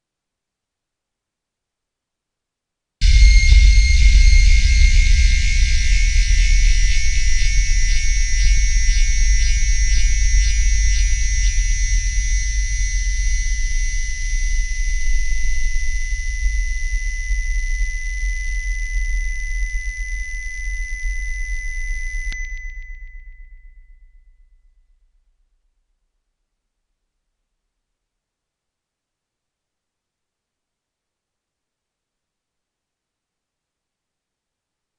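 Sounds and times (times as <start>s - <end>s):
steady high whistle: 3.0s - 24.5s
deep sub-bass hum: 3.0s - 24.9s.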